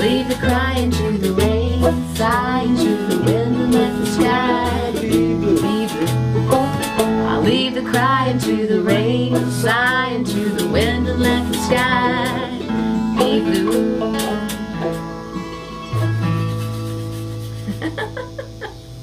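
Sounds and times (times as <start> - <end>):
person singing wordlessly: 0.0 - 14.6
acoustic guitar and banjo tune: 0.0 - 19.0
low bass notes: 0.0 - 19.0.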